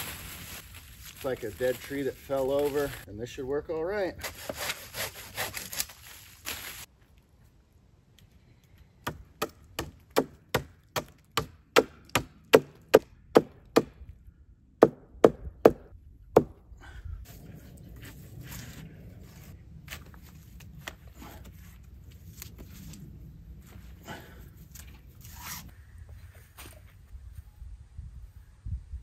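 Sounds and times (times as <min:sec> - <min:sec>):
blade chopping wood: 0:09.0 - 0:14.0.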